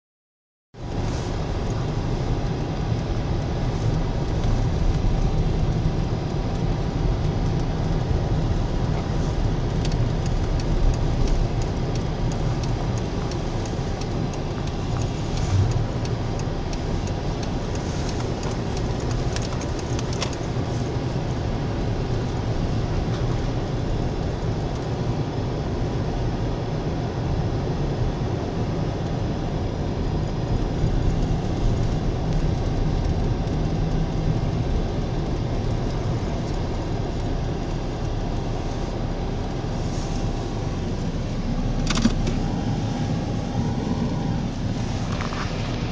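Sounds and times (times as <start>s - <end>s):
engine and tyres rumbling: 0.7s - 45.9s
faint clicks and rattles: 0.9s - 21.3s.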